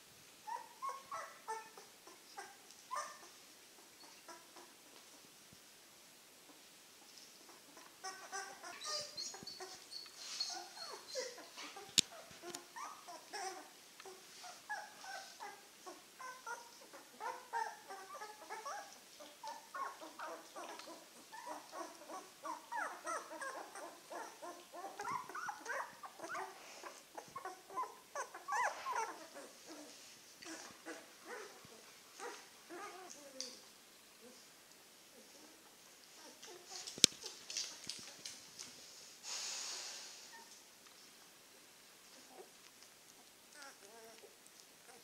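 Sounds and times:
puppies whimpering and squeaking: 0:00.5 - 0:04.7, 0:07.4 - 0:33.6, 0:43.5 - 0:44.3.

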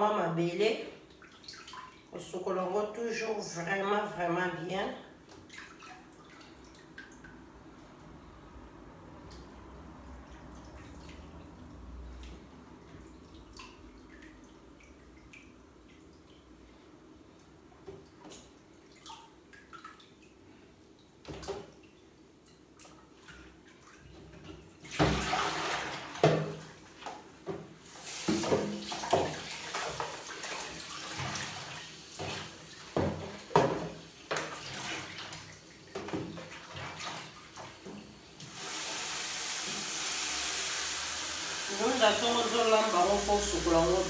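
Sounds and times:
water splashing: 0:01.1 - 0:02.1, 0:22.7 - 0:27.0, 0:27.9 - 0:37.8
tap running into sink: 0:27.5 - 0:30.3
knocks on basin and sink: 0:33.0 - 0:34.5.

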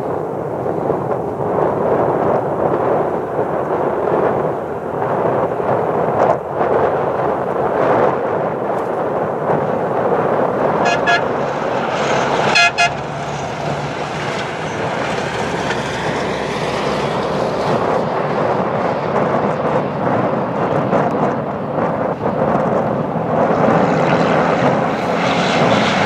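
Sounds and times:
truck engines: 0:00.0 - 0:26.0
vehicle horn toots: 0:10.8 - 0:11.5, 0:12.4 - 0:13.2.

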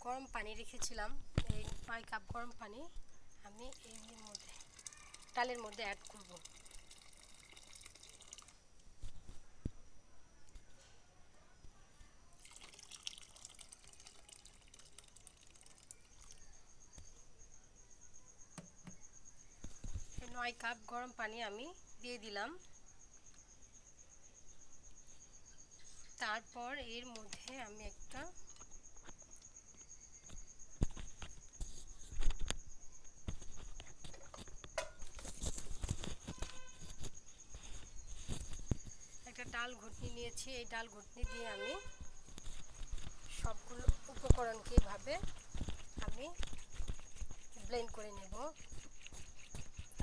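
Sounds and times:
cricket trilling: 0:00.0 - 0:50.0
water pouring into a pan: 0:03.5 - 0:08.6, 0:12.4 - 0:16.4
kitchen utensils knocking: 0:34.8 - 0:35.1.

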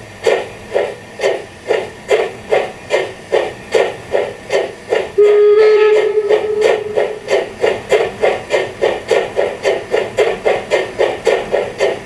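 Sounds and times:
steam locomotive exhaust chuffs: 0:00.0 - 0:12.0
steam whistle: 0:05.2 - 0:07.3.

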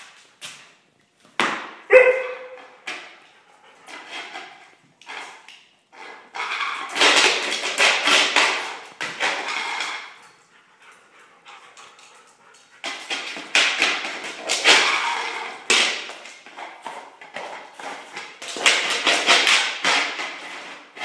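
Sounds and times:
dog claws scrabbling on floor: 0:02.4 - 0:10.4, 0:11.5 - 0:21.0.

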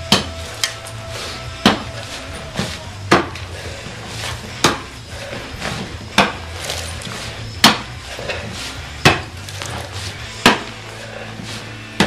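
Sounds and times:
hoe chopping into dirt: 0:01.6 - 0:02.0, 0:02.6 - 0:03.5, 0:04.3 - 0:04.9, 0:05.6 - 0:07.9, 0:09.0 - 0:10.8.

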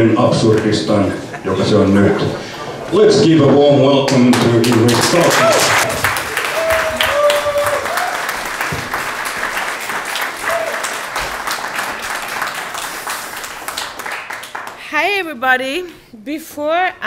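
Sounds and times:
audience applauding: 0:04.1 - 0:14.9.

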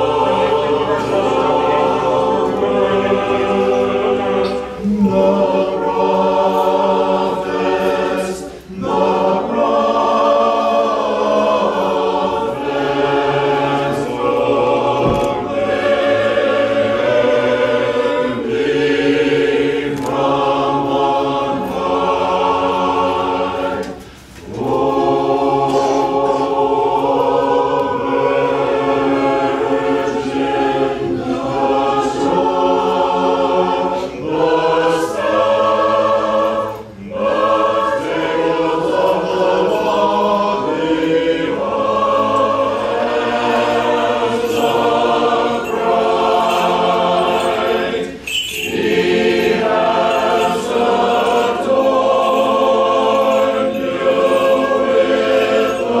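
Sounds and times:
choir singing chant: 0:00.0 - 0:56.0.

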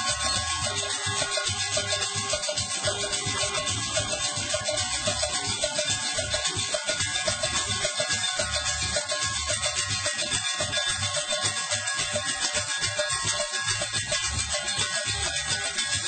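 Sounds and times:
percussion band dance beat: 0:00.0 - 0:16.0
shakers: 0:00.0 - 0:16.0.

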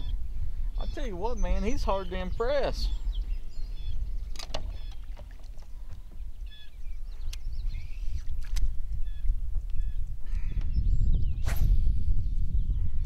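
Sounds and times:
bird chirps: 0:00.0 - 0:05.3, 0:06.2 - 0:08.4
wind rumble on microphone: 0:00.0 - 0:13.0.

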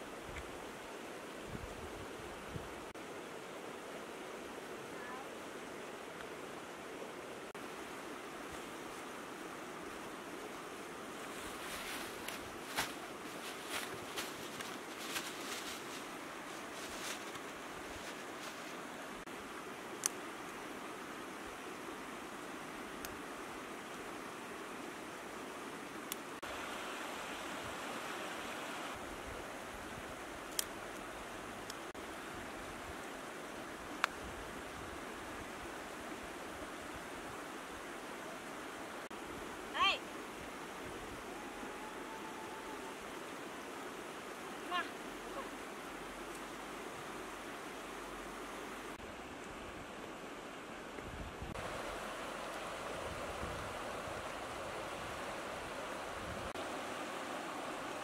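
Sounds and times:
rushing outdoor hiss: 0:00.0 - 0:58.0
charcoal clicking and crackling: 0:30.4 - 0:31.0.

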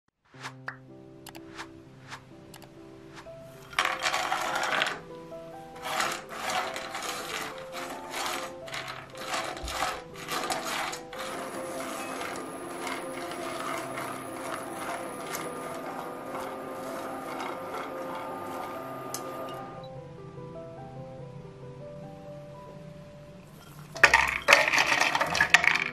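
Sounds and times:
nuts clattering in a pan: 0:03.7 - 0:05.0, 0:05.8 - 0:19.5, 0:23.8 - 0:25.9
spatula scraping a pan: 0:05.8 - 0:19.6.

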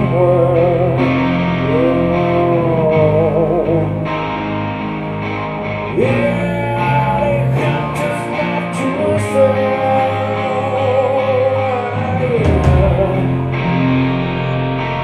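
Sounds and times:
bass guitar: 0:00.0 - 0:15.0
electric guitars: 0:00.0 - 0:15.0
voice holding a long note: 0:09.0 - 0:13.5
drums: 0:11.5 - 0:15.0.

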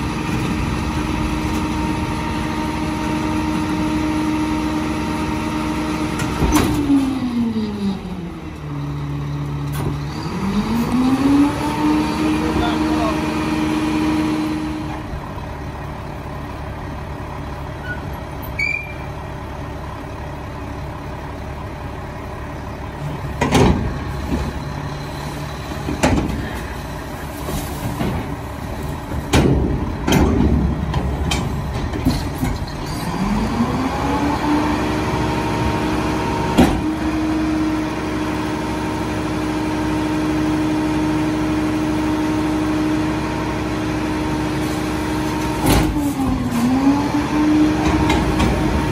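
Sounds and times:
garbage truck engine idling: 0:00.0 - 0:10.8, 0:11.7 - 0:48.9
dumpster bangs and clanks: 0:05.9 - 0:07.3, 0:23.1 - 0:34.8, 0:36.3 - 0:37.4, 0:44.9 - 0:48.9
engine revving steadily: 0:09.6 - 0:15.5, 0:33.0 - 0:48.9.

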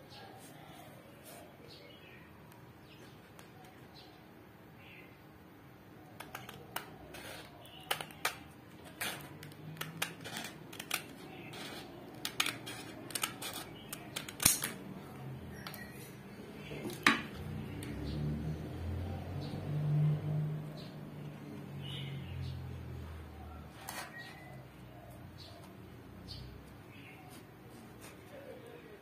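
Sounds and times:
scissors cutting sandpaper: 0:06.2 - 0:14.8.

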